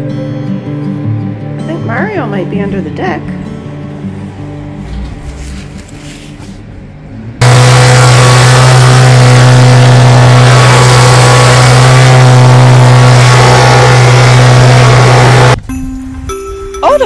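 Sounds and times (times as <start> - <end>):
leaf blower running: 7.4 - 15.6.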